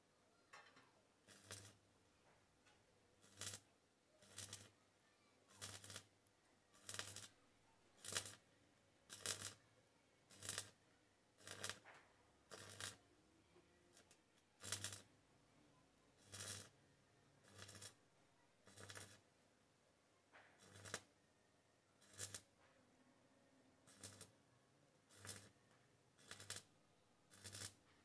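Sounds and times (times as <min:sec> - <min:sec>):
welding arc crackling: 0:01.3 - 0:01.8, 0:03.2 - 0:03.6, 0:04.2 - 0:04.7, 0:05.6 - 0:06.1, 0:06.8 - 0:07.3, 0:08.0 - 0:08.4, 0:09.1 - 0:09.6, 0:10.3 - 0:10.8, 0:11.4 - 0:11.8, 0:12.5 - 0:13.0, 0:14.0 - 0:15.0, 0:16.2 - 0:16.7, 0:17.4 - 0:18.0, 0:18.7 - 0:19.2, 0:20.6 - 0:21.0, 0:22.0 - 0:22.5, 0:23.9 - 0:24.3, 0:25.1 - 0:25.5, 0:26.2 - 0:26.7, 0:27.3 - 0:27.8.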